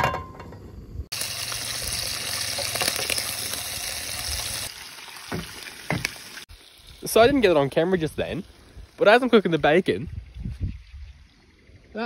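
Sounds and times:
bacon sizzling in a frying pan: 0:01.1 - 0:09.0.

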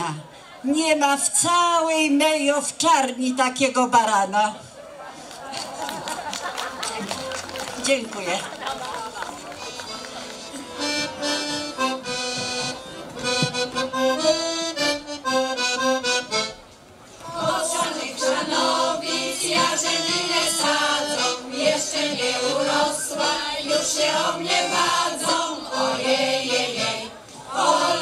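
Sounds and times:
accordion playing folk tune: 0:06.6 - 0:28.0
women singing: 0:17.2 - 0:28.0.

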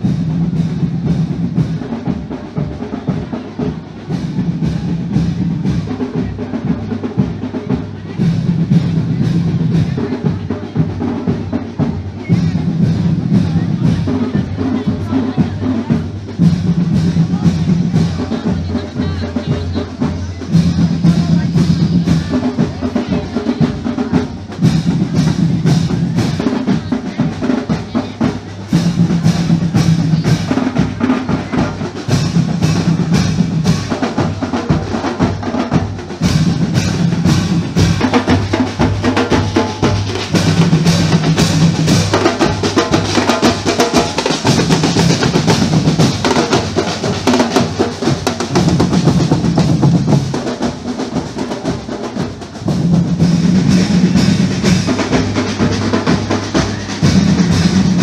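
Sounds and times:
snare and bass drums beating: 0:00.0 - 0:58.0.

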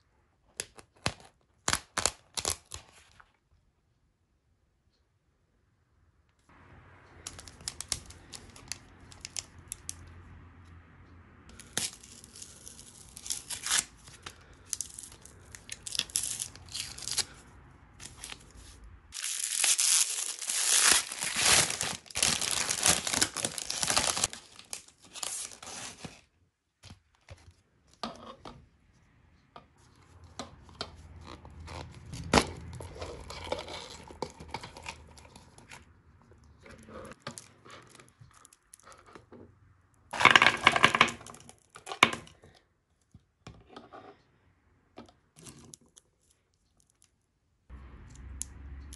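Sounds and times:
cellophane crinkling and tearing: 0:00.9 - 0:03.2, 0:11.5 - 0:17.4, 0:18.0 - 0:26.3.

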